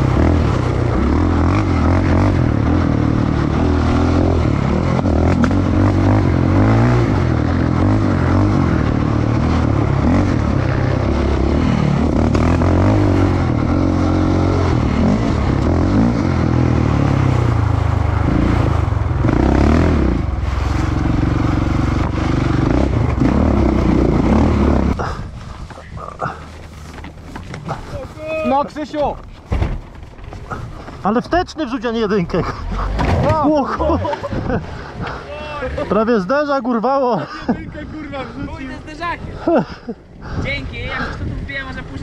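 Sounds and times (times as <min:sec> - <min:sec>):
quad bike engine revving: 0:00.0 - 0:26.5, 0:32.0 - 0:36.3.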